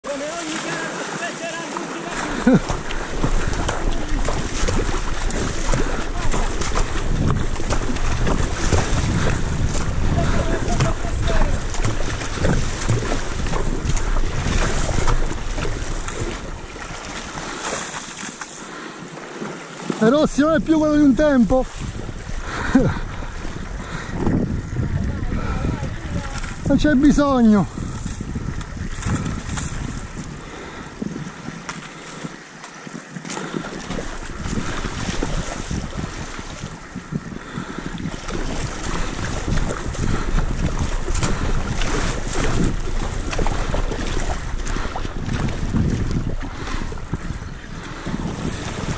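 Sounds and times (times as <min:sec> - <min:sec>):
paddle blades splashing: 0:00.0 - 0:48.9
water splashing along a hull: 0:00.0 - 0:48.9
wind buffeting the microphone: 0:02.0 - 0:18.1, 0:20.1 - 0:48.9.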